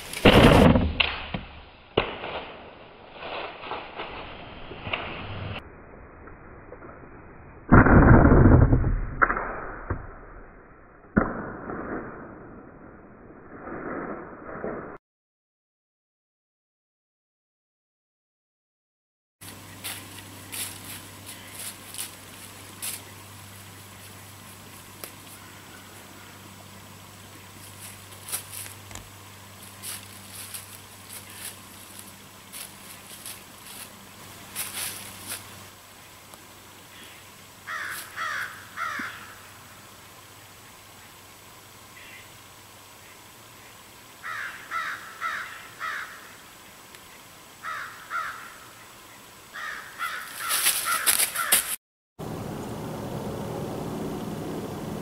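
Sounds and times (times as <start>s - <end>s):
rustling: 19.4s - 26.2s, 27.5s - 35.7s, 50.0s - 51.8s
hooves crunching dry leaves: 19.4s - 26.5s, 27.2s - 35.8s, 37.7s - 39.3s, 49.6s - 51.8s.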